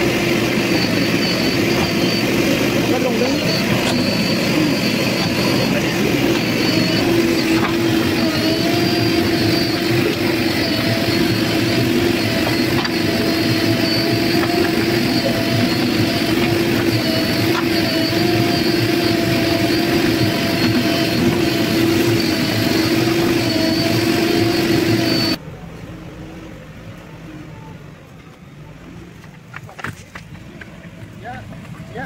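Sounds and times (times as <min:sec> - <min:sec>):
diesel engine running under load: 0:00.0 - 0:25.4.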